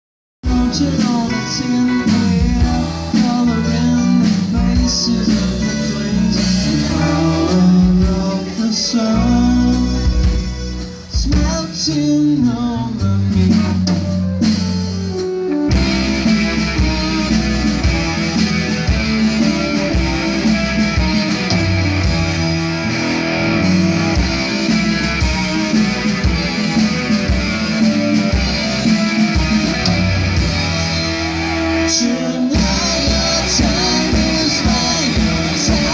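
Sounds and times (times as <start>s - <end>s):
bass guitar: 0.4s - 35.9s
drums: 0.4s - 35.9s
electric guitar: 0.4s - 35.9s
keyboard: 0.4s - 35.9s.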